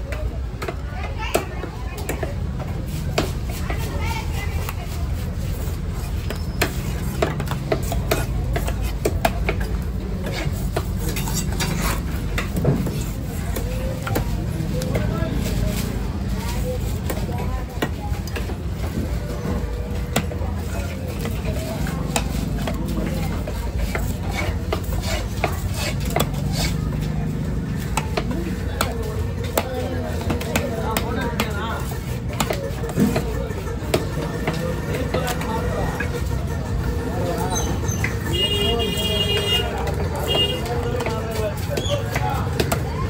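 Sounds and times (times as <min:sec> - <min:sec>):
market background rumble: 0:00.0 - 0:43.0
knife strokes on cutting block: 0:04.6 - 0:14.2, 0:22.1 - 0:27.2.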